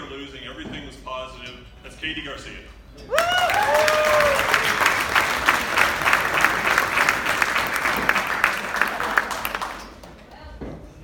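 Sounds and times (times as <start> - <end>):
person cheering: 3.1 - 5.0
audience applauding: 3.2 - 10.2.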